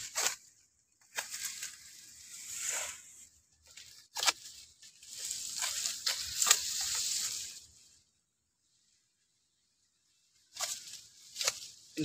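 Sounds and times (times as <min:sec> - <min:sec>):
stalks snapping: 0:00.0 - 0:01.8, 0:03.7 - 0:07.4, 0:10.5 - 0:11.8
dry leaves and stalks rustling: 0:00.0 - 0:12.0.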